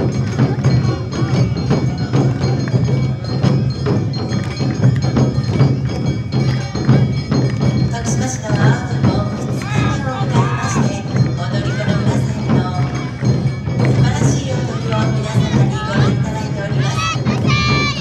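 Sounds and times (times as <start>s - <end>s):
drums and percussion: 0.0s - 18.0s.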